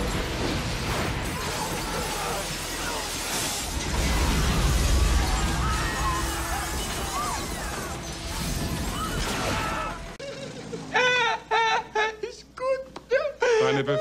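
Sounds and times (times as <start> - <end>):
glass shattering: 0.0 - 10.0
debris crashing down: 0.0 - 10.2
explosion blast rumble: 3.2 - 10.2.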